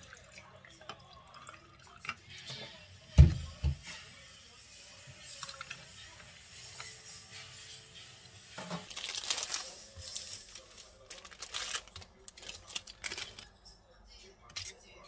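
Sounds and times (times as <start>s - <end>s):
coffee poured over ice: 8.6s - 13.5s
water poured over ice: 8.9s - 13.4s.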